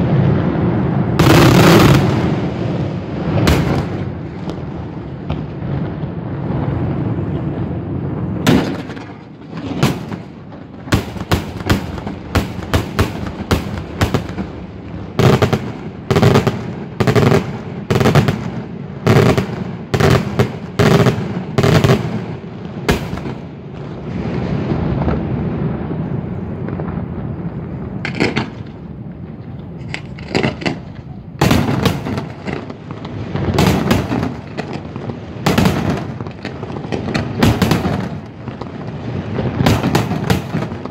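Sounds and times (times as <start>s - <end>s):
fireworks shells bursting: 28.0s - 28.8s.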